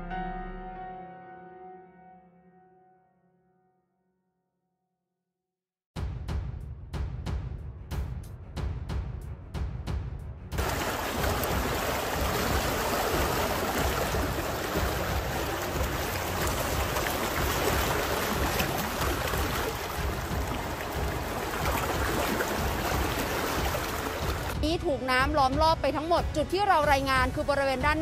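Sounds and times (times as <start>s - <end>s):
floodwater rushing: 10.6s - 24.6s.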